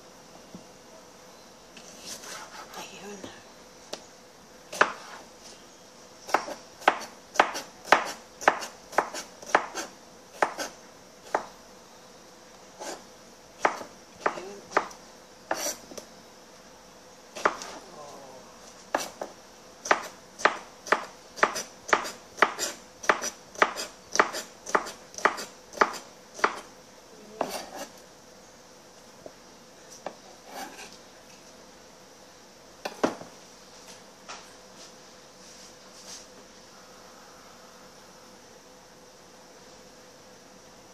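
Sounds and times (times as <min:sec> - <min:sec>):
knife chopping on plastic board: 0:13.6 - 0:14.9, 0:18.9 - 0:26.6.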